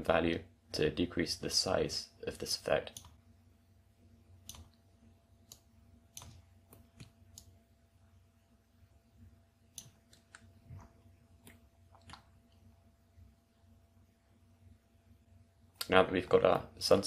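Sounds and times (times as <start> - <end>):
low electrical hum: 0.0 - 17.0
computer mouse clicks: 2.9 - 3.2, 4.4 - 4.8, 5.4 - 7.6, 9.7 - 12.3.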